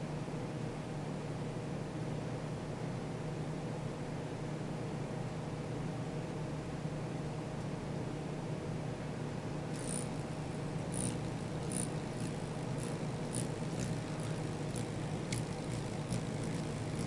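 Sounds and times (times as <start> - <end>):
low background hum: 0.0 - 17.0
hummingbird chip notes: 9.8 - 17.0.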